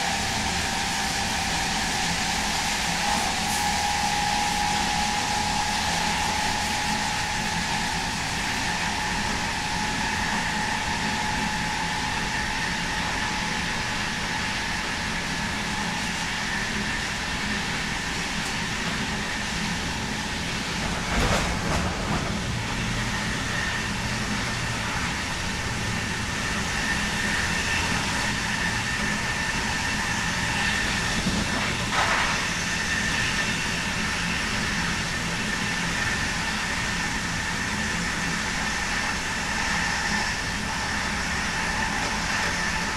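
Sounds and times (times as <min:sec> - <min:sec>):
electric locomotive inverter whine: 0:00.0 - 0:42.9
train rolling rumble: 0:00.0 - 0:42.9
train clatter: 0:18.3 - 0:25.9, 0:30.4 - 0:33.9.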